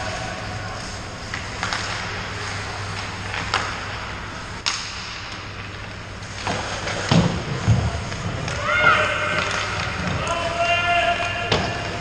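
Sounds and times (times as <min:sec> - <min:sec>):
stick hitting puck: 0:04.6 - 0:05.7, 0:06.4 - 0:10.4.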